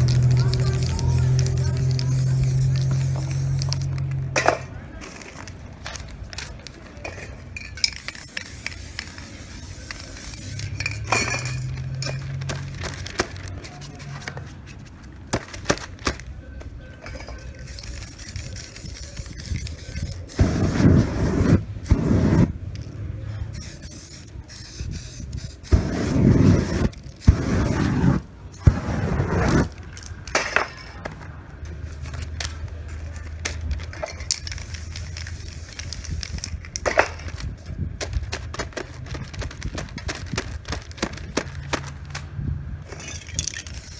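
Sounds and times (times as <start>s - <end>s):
spray paint can hissing: 0.0s - 4.6s, 7.6s - 14.6s, 17.1s - 30.4s, 33.2s - 42.2s, 42.9s - 43.9s
cans and tools clinking: 3.6s - 8.8s, 10.4s - 13.5s.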